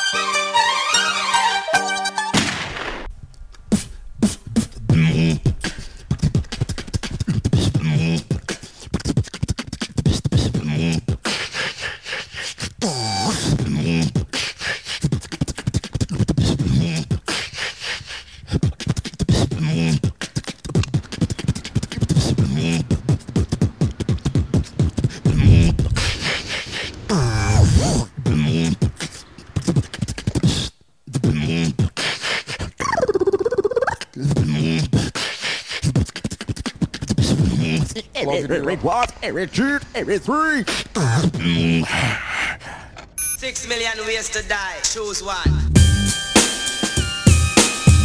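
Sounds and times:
person beatboxing: 3.7 - 26.4, 27.1 - 38.1, 39.8 - 42.0.

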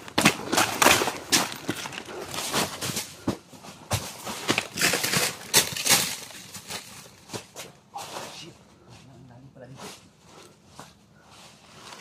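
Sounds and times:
dry leaves rustling and crackling: 4.2 - 7.4.

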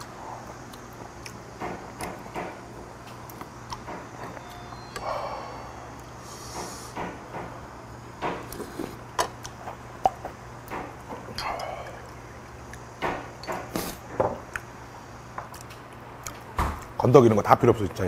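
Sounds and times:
person eating: 0.0 - 2.3, 8.4 - 10.4, 11.1 - 14.7.

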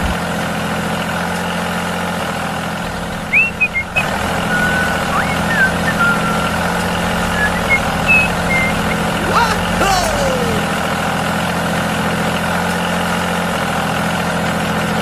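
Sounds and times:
small birds chirping: 3.1 - 9.3.

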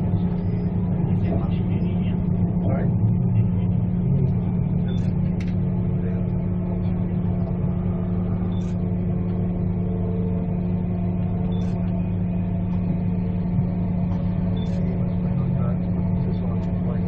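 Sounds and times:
train carriage hum and rumble: 0.0 - 17.0.

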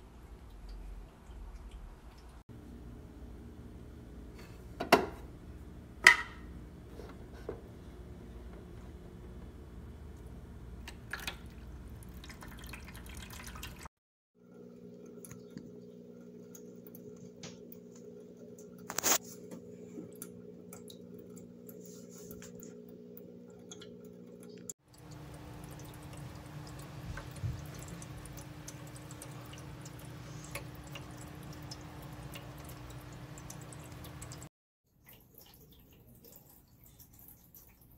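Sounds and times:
water trickling into bowl: 10.8 - 17.2, 20.1 - 37.9
pump hum: 14.4 - 34.5.

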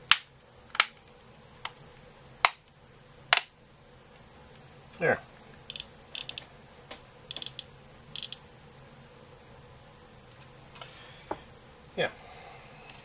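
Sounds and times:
rapid high-pitched clicker ticking: 5.7 - 6.5, 7.3 - 8.4.

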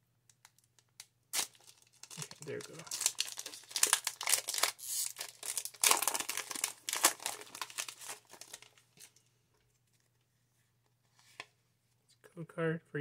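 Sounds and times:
foil wrapper crinkling and tearing: 1.3 - 9.1.

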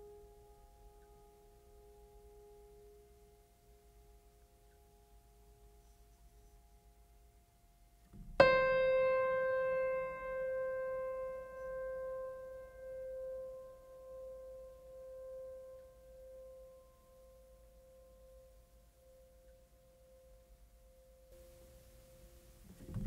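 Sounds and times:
faint held music tones: 0.0 - 23.0.

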